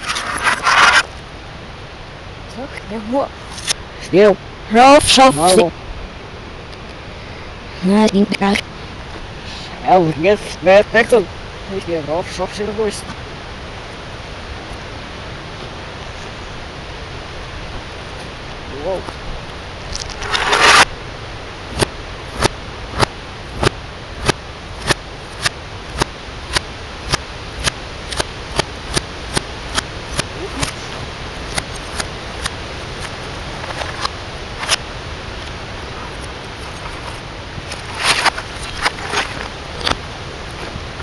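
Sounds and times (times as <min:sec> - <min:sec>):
reversed crash: 0:00.0 - 0:01.2, 0:19.9 - 0:21.0.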